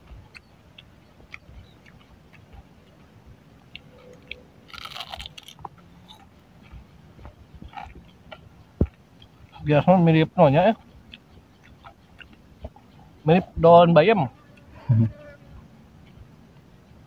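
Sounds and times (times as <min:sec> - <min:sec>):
person chewing crispy food: 0:00.0 - 0:09.6, 0:10.7 - 0:13.2.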